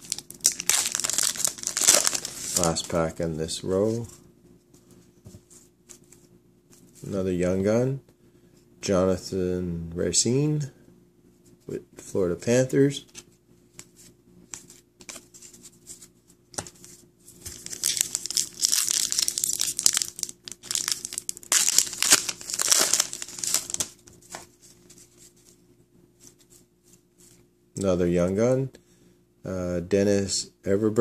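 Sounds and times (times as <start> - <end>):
wrapper crinkling and tearing: 0.0 - 2.9, 17.5 - 24.0
cards being handled: 0.0 - 3.0, 13.0 - 25.6.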